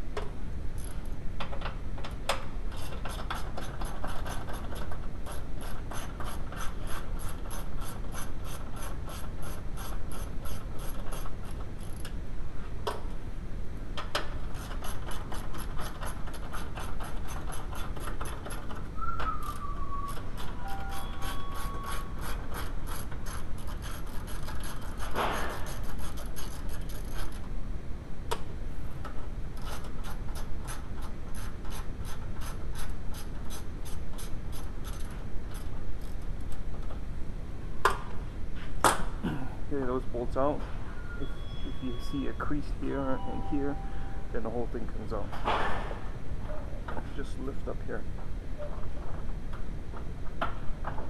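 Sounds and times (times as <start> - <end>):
ratchet wrench clicking: 0.8 - 1.0, 5.3 - 12.1, 19.4 - 27.4, 29.6 - 36.6
squeak falling in pitch: 40.9 - 44.4.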